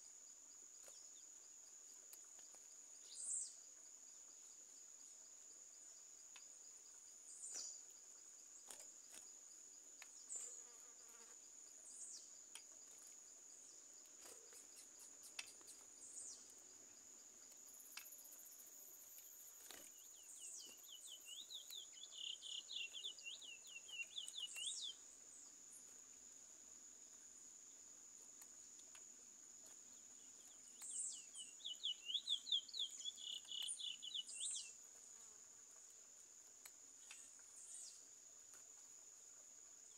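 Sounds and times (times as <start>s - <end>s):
bird whistling song: 20.3s - 25.0s, 30.8s - 34.7s.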